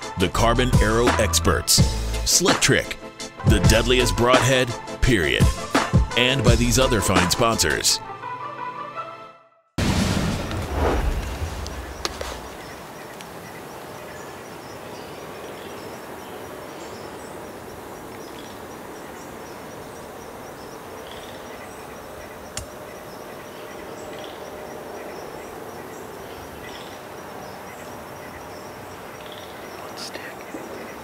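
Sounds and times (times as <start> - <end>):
high insect trill: 10.9 - 31.0.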